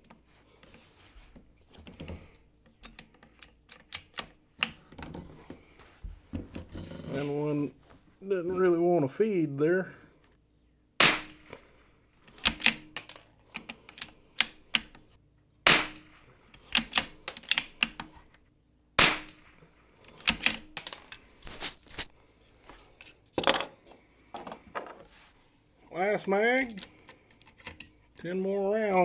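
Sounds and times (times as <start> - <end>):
rifle shots: 11.0 - 11.5, 15.6 - 16.3, 19.0 - 19.6
rifle bolt clicks: 12.3 - 15.0, 15.8 - 18.1.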